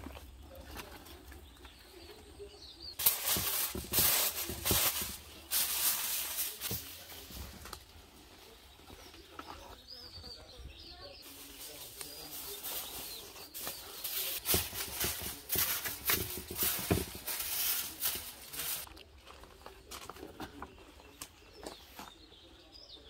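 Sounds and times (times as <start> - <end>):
aluminium foil crinkling: 3.0 - 9.1, 11.2 - 19.0.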